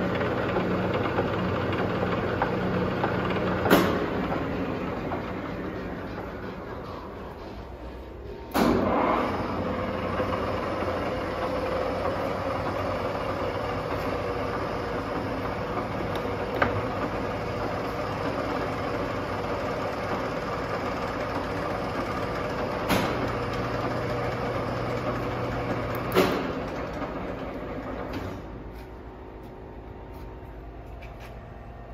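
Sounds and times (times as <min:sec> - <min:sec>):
lathe running with hum: 0:00.0 - 0:31.9
machine clunk: 0:02.4 - 0:09.4, 0:22.6 - 0:28.7.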